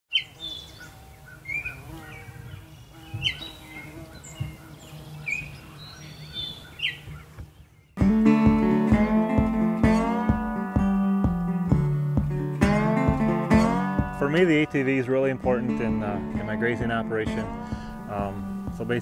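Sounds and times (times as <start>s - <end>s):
birds chirping: 0.1s - 19.0s
acoustic guitar music: 8.0s - 19.0s.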